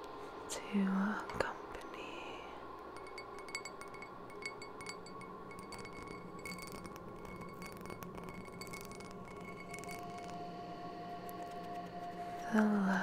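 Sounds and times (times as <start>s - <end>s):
steady ambient drone: 0.2s - 13.0s
wind chimes tinkling: 3.0s - 10.4s.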